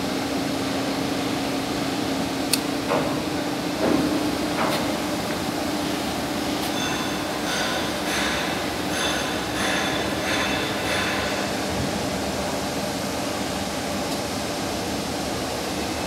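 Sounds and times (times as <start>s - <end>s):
machinery hum: 0.0s - 16.0s
metallic knocks and clinks: 6.6s - 11.5s.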